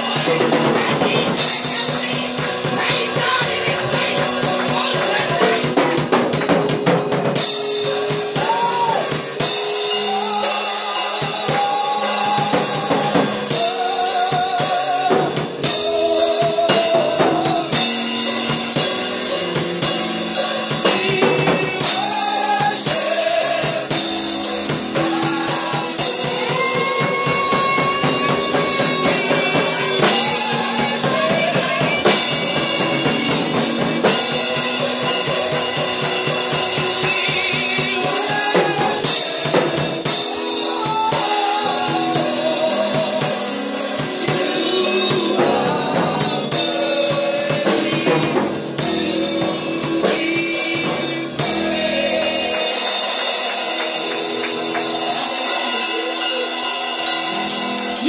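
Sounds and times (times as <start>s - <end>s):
drum kit beat: 0.0s - 58.0s
keyboard: 0.0s - 58.0s
wavering melody line: 15.7s - 39.4s.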